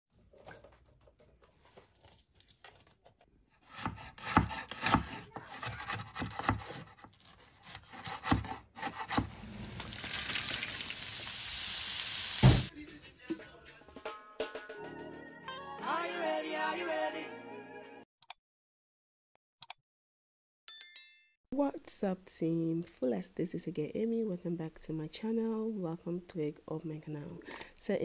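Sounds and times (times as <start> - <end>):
knife chopping on wooden board: 3.6 - 9.3
vegetables sizzling in a frying pan: 9.3 - 12.7
thump: 12.4 - 12.7.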